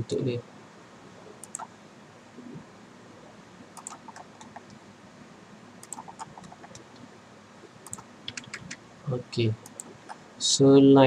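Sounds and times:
mouse and keyboard clicking: 1.4 - 1.7, 3.8 - 4.8, 5.8 - 7.0, 7.8 - 8.8, 9.6 - 10.2.

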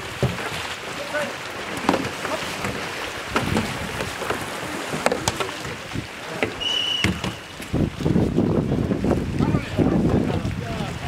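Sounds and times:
paddles and hulls clashing: 0.0 - 11.0
paddles splashing water: 0.0 - 11.0
referee's whistle blast: 6.6 - 7.5.

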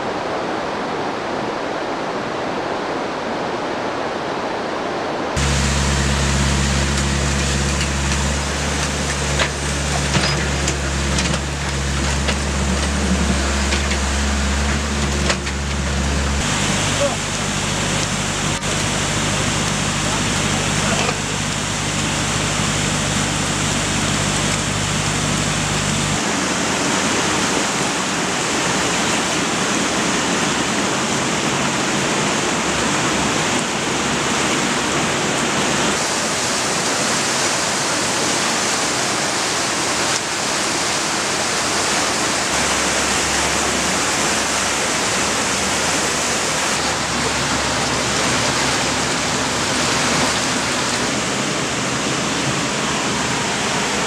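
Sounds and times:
fast-flowing water rushing: 0.0 - 54.0
low steady hum: 5.4 - 27.6, 42.4 - 54.0.

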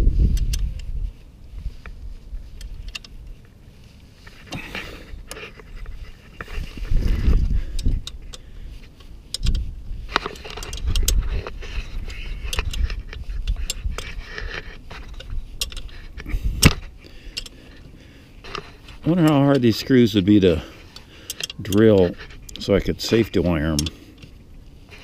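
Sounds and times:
metallic clicks and clinks: 10.2 - 24.4.

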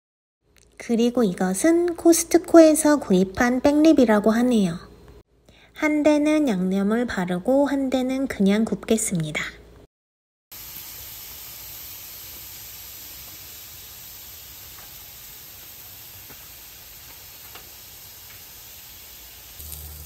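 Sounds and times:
ribs sizzling on a grill: 10.6 - 20.0.

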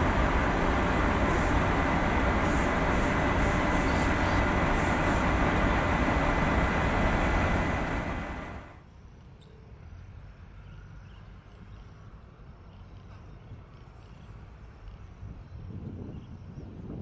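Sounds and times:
jet airliner noise: 0.0 - 8.8
steady low rumble: 0.0 - 8.8.

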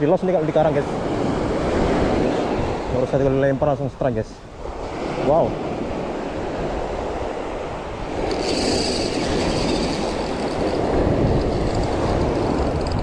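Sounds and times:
surf washing on shore: 0.0 - 13.0
fishing reel drag buzzing: 8.2 - 13.0.

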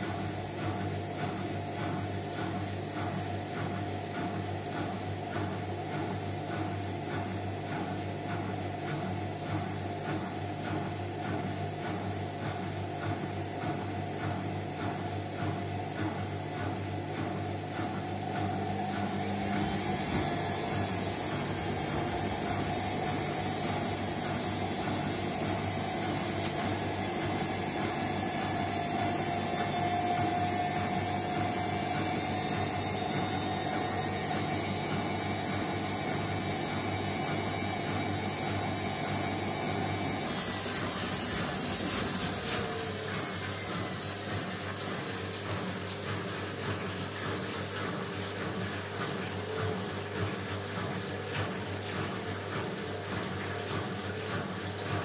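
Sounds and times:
washing machine running: 0.0 - 55.0
hiss of spinning drum: 17.8 - 46.2.

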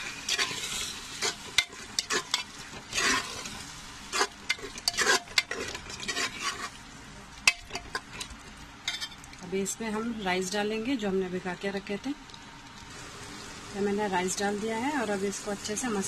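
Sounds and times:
metal spoon scraping a pot: 0.0 - 6.8, 7.5 - 9.3
food sizzling: 0.0 - 16.0.

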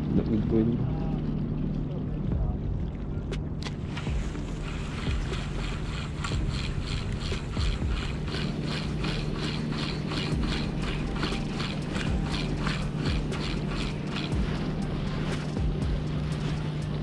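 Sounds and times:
low hum and rumble: 0.0 - 17.0
fishing reel whirring: 3.6 - 17.0.

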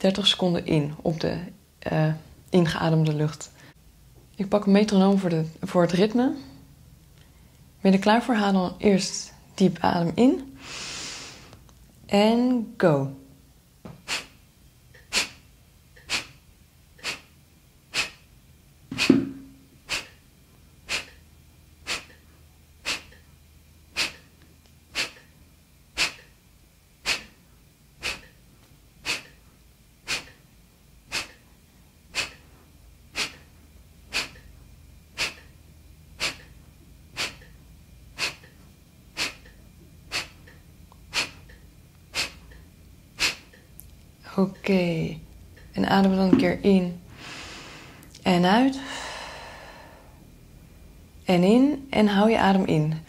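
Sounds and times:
forceful nasal exhalations: 10.6 - 11.6, 14.0 - 14.4, 15.0 - 15.4, 16.0 - 16.4, 17.0 - 17.3, 17.9 - 18.2, 18.9 - 20.2, 20.9 - 21.2, 21.8 - 22.2, 22.8 - 23.2, 24.0 - 24.3, 24.9 - 25.3, 26.0 - 26.3, 27.0 - 27.4, 28.0 - 28.3, 29.0 - 29.4, 30.0 - 30.4, 31.1 - 31.4, 32.1 - 32.5, 33.1 - 33.5, 34.1 - 34.4, 35.1 - 35.5, 36.2 - 36.5, 37.2 - 37.5, 38.2 - 38.5, 39.1 - 39.5, 40.1 - 40.4, 41.1 - 41.5, 42.1 - 42.6, 43.2 - 43.6, 47.1 - 48.0.

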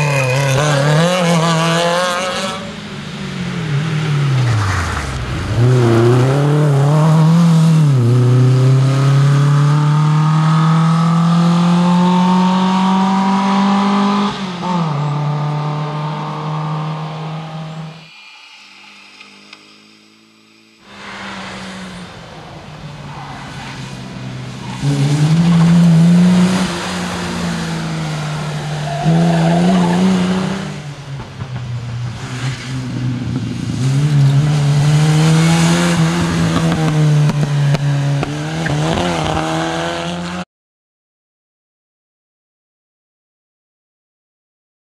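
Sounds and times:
tyre squeal: 0.0 - 1.4
rally car engines revving: 0.0 - 18.1, 20.9 - 40.4.

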